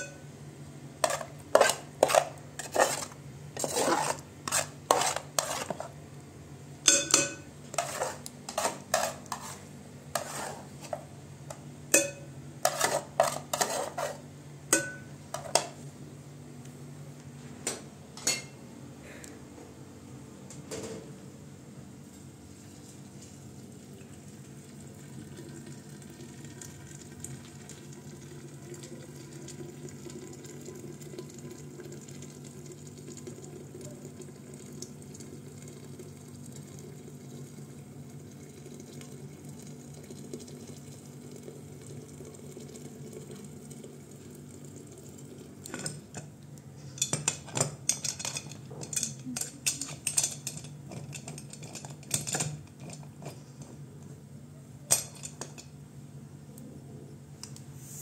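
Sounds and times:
utensil clinking on metal lid: 0:06.9 - 0:09.4, 0:11.9 - 0:14.1, 0:14.7 - 0:15.7
water pouring into a pot: 0:23.6 - 0:45.6.

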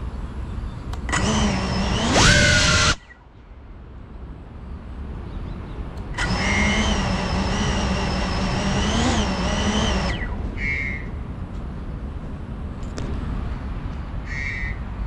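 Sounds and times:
drone motors whining: 0:01.0 - 0:03.2, 0:06.1 - 0:11.1.

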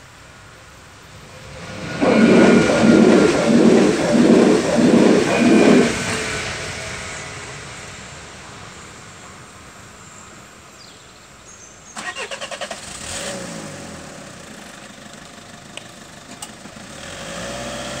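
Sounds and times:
car engine cranking and starting: 0:12.0 - 0:13.7.

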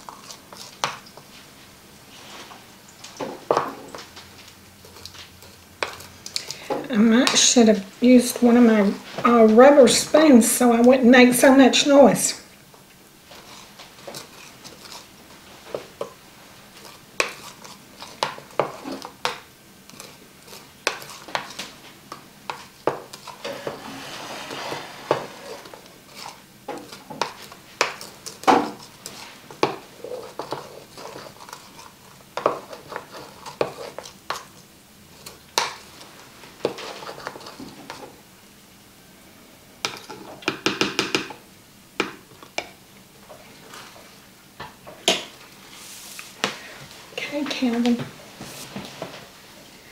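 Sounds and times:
metal spoon scraping a dish: 0:23.2 - 0:27.4.

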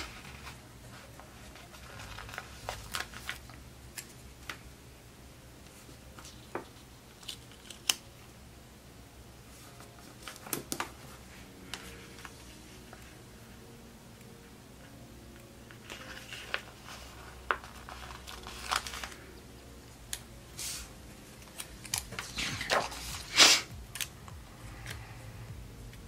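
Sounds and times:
paper pages rustling: 0:00.0 - 0:04.6, 0:09.5 - 0:13.2, 0:15.7 - 0:19.3, 0:20.6 - 0:24.1.

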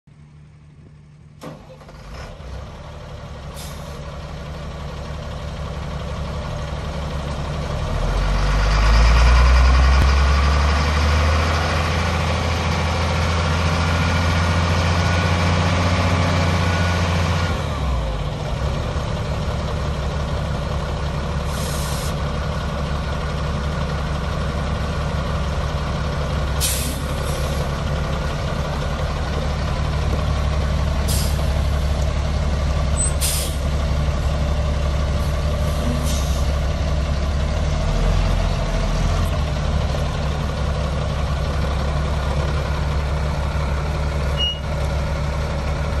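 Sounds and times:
diesel truck engine idling: 0:00.2 - 0:46.0
short air hisses: 0:21.5 - 0:22.2, 0:26.6 - 0:27.6, 0:31.1 - 0:31.5, 0:33.2 - 0:33.6.

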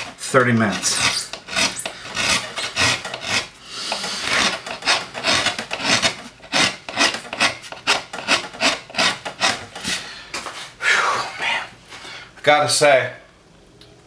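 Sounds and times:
gouge scraping wood: 0:00.0 - 0:10.0.

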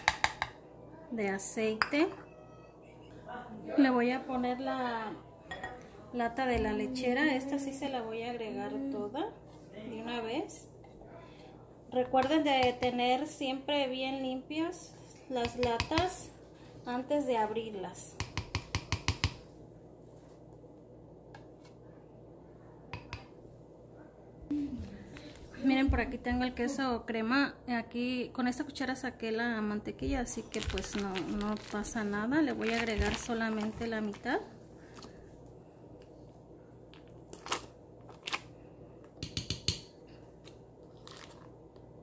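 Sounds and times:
spoon scraping foil wrapper: 0:30.3 - 0:34.3.

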